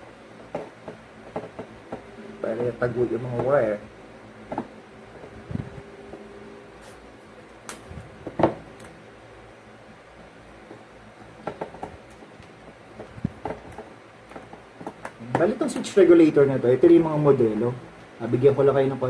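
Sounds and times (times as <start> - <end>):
steady low hum: 0.0 - 19.0
wiring handling clicks and knocks: 0.4 - 2.1, 4.4 - 6.2, 11.4 - 15.8.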